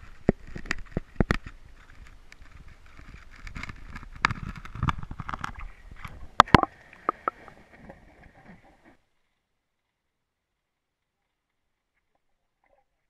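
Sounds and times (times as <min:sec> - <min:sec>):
water sloshing: 0:03.0 - 0:09.0.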